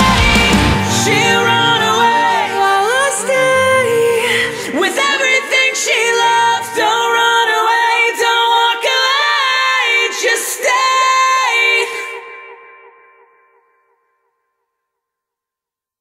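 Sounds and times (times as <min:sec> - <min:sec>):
layered sung vocals: 0:00.0 - 0:12.8.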